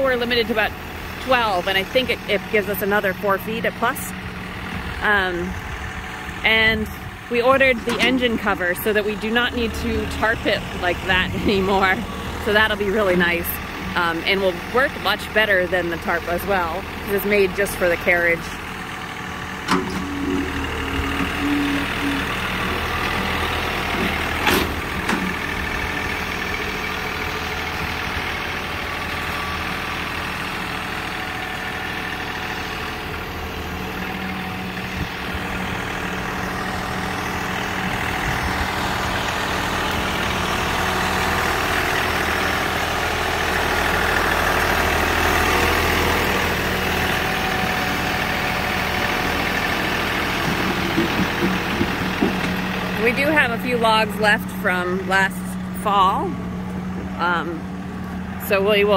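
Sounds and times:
tractor diesel engine running: 0.0 - 58.9.

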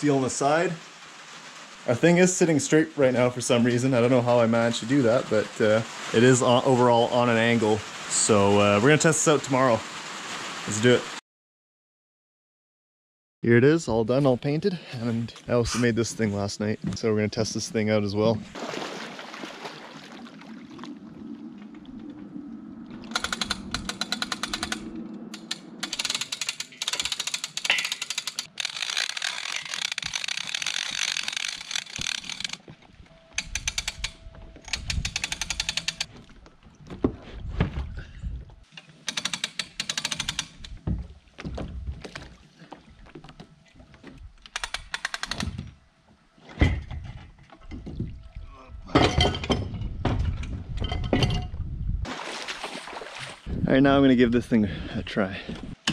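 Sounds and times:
water sloshing: 18.4 - 25.8, 52.1 - 53.6
hand-crank winch ratcheting: 23.1 - 32.6, 33.3 - 36.1, 38.7 - 40.8, 44.4 - 45.6.

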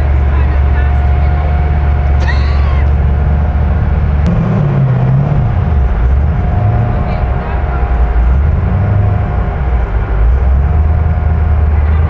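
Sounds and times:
car engine idling unevenly: 0.0 - 12.0
steady thin whine: 3.0 - 12.0.

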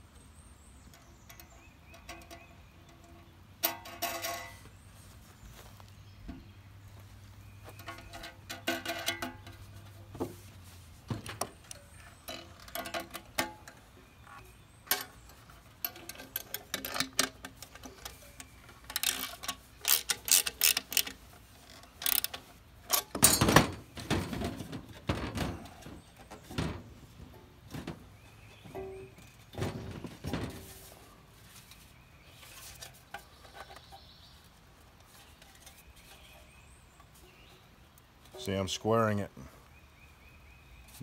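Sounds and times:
wrench turning nuts: 14.9 - 23.5.

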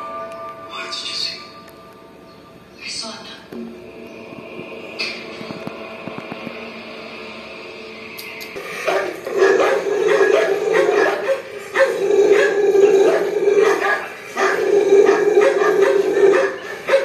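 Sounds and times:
dog howling: 8.8 - 17.0.

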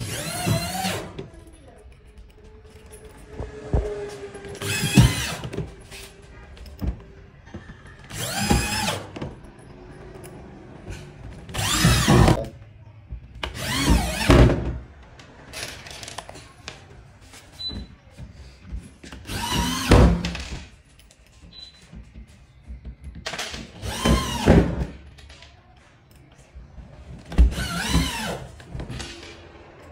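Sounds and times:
electric drill driving screws: 8.1 - 9.1, 11.5 - 12.4.

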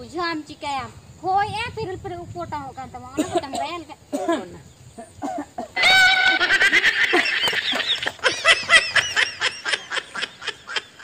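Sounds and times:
fowl squawking and clucking: 5.8 - 10.8.

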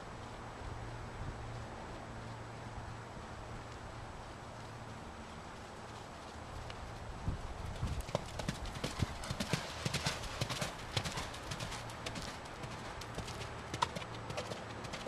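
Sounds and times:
horse hoofbeats on sand: 3.1 - 15.0.

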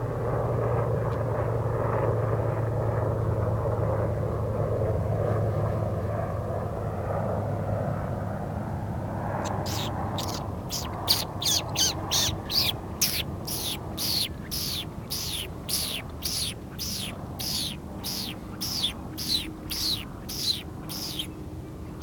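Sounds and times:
bird calling harsh notes: 9.5 - 21.4.

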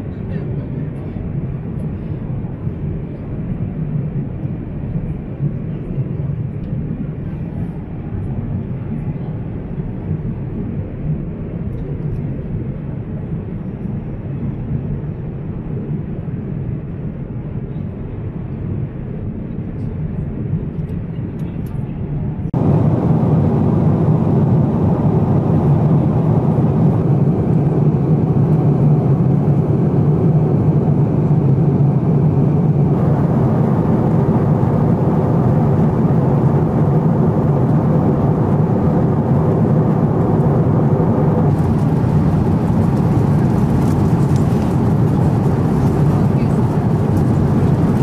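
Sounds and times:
airplane cabin rumble: 0.0 - 48.0.

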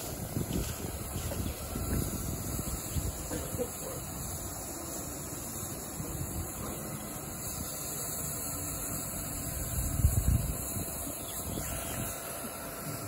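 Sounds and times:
steam hiss: 0.0 - 13.0
steam train rumbling: 0.0 - 13.0.

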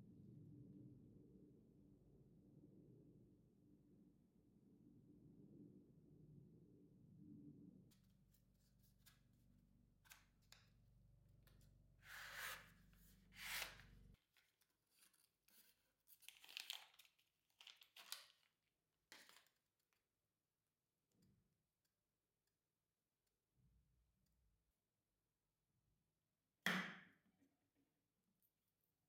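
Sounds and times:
wrapper tearing and crinkling: 16.2 - 18.5.

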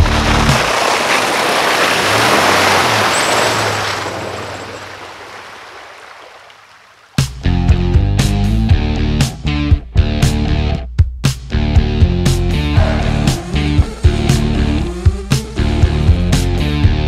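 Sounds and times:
truck engine hum: 0.0 - 7.0, 12.2 - 17.0
water splashing: 0.0 - 7.4.

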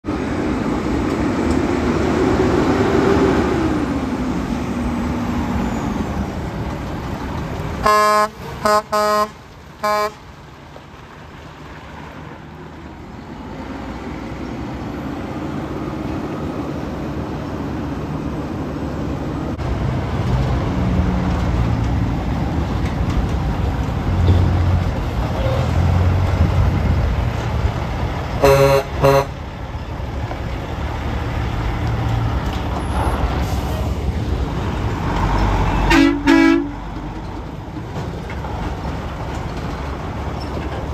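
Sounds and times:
deep truck engine rumble: 0.0 - 40.9
diesel trucks driving past: 0.0 - 40.9
air horn blasts: 7.8 - 10.2, 28.4 - 29.4, 35.8 - 36.8.

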